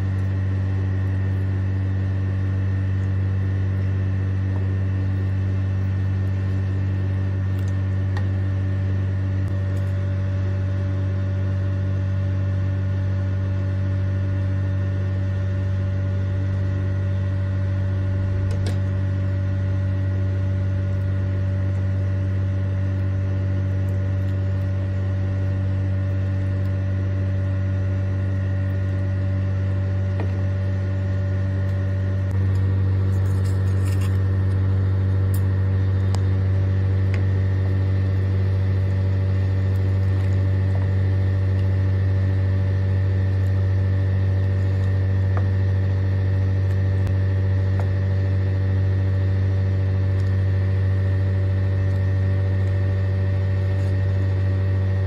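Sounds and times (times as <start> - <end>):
low electrical hum: 0.0 - 55.0.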